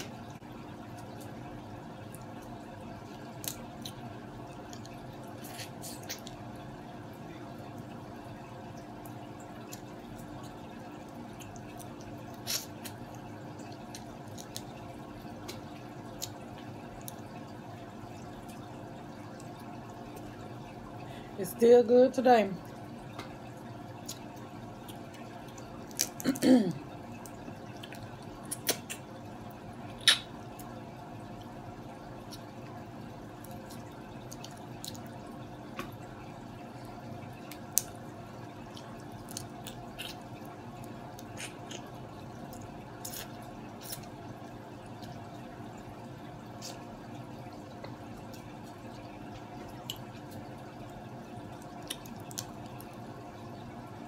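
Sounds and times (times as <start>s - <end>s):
steady background hum: 0.0s - 54.0s
wet mouth sounds: 25.9s - 29.1s, 29.9s - 30.4s, 41.2s - 42.0s.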